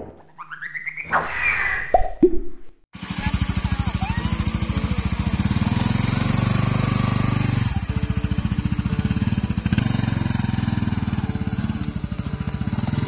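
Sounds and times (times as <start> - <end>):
motorcycle engine riding off: 3.0 - 13.0.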